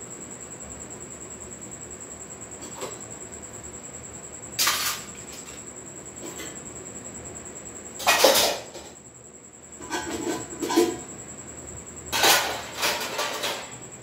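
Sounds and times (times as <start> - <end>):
kitchen utensils clattering: 4.6 - 5.6, 8.0 - 8.9, 9.8 - 11.0, 12.1 - 13.8.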